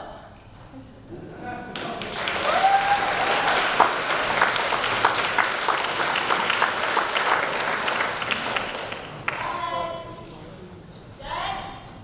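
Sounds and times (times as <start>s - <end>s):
audience applauding: 1.7s - 9.7s.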